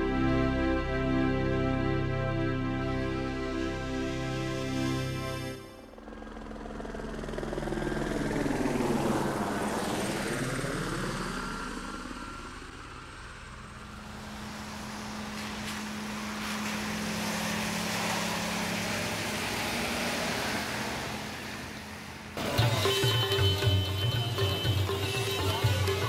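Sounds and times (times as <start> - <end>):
aircraft engine rumble: 5.6 - 22.6.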